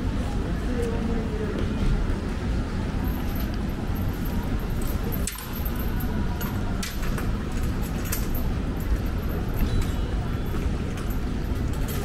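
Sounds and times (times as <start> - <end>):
street noise with low rumble: 0.0 - 12.0
light ticks and clinks: 3.1 - 12.0.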